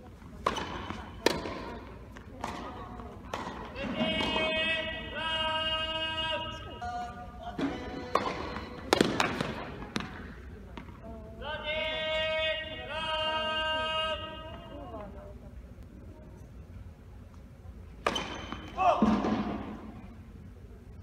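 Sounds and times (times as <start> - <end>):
steady low hum: 0.0 - 21.0
tennis balls struck and bouncing: 0.3 - 4.8, 7.6 - 11.0, 17.9 - 19.8.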